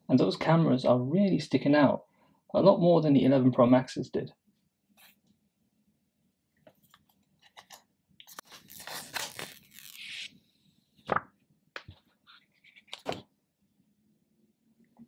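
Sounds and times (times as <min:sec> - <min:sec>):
screen film peeling off crackling: 0:07.6 - 0:10.3.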